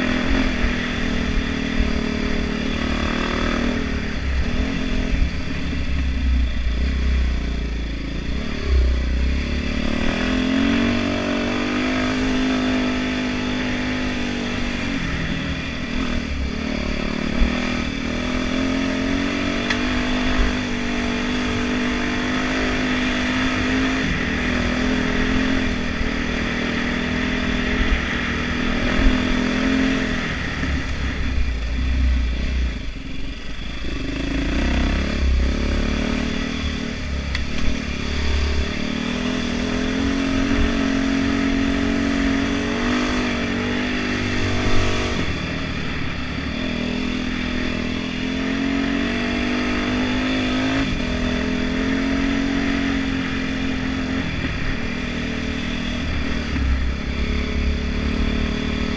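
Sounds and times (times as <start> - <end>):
heavy low rumble: 0.0 - 11.8, 23.5 - 42.0
dirt bike engine revving: 0.0 - 58.9.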